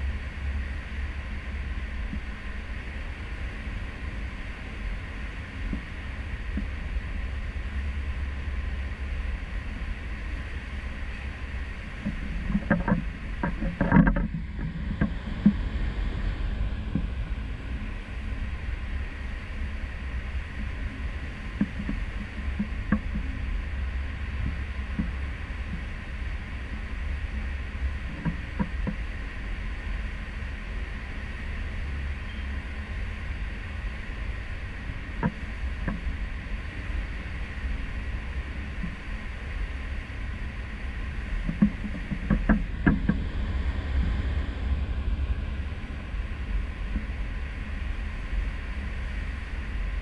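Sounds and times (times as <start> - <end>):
ship low rumble and rush: 0.0 - 50.0
knocks and clicks: 41.5 - 43.2.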